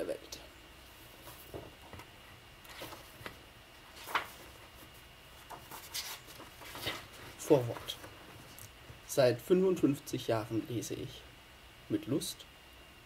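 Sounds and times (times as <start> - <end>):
book pages rustling: 2.7 - 8.7.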